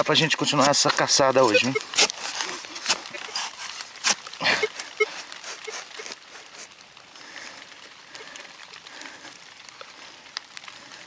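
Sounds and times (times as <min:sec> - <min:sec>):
digging scrapes in dirt: 0:00.0 - 0:06.7
light rain on grass: 0:00.0 - 0:11.0.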